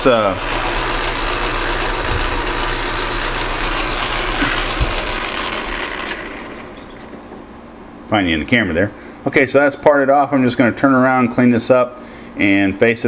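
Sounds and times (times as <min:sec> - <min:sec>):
metal lathe whirring: 0:00.0 - 0:08.0
mechanical knock: 0:04.6 - 0:07.5.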